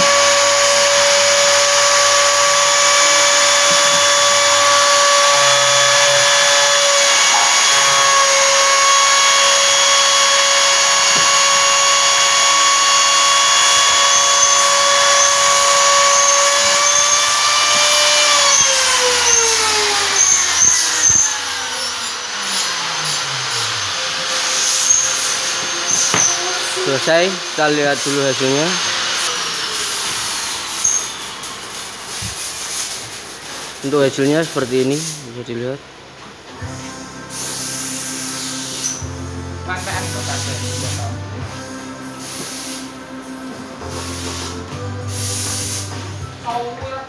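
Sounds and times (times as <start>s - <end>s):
router spindle motor whine: 0.0s - 32.0s.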